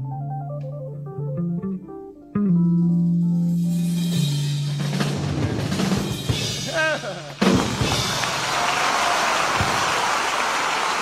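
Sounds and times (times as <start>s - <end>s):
keyboard notes: 0.0s - 8.0s
drums: 2.9s - 11.0s.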